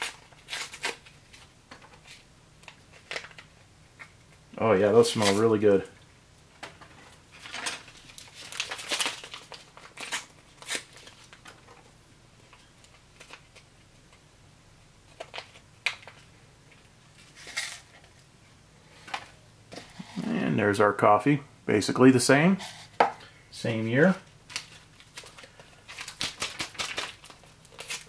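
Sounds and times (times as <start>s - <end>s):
foil packets crinkling: 0.0s - 3.6s, 7.3s - 11.8s, 23.9s - 28.0s.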